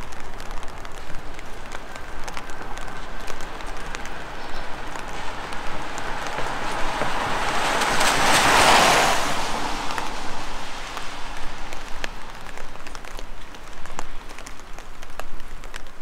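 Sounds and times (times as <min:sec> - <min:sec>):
raindrops pattering: 0:00.0 - 0:16.0
car tyres hissing on wet road: 0:00.1 - 0:16.0.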